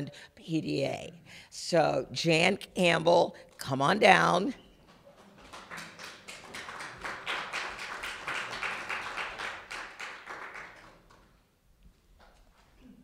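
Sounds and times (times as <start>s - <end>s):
small audience applauding: 4.9s - 11.4s.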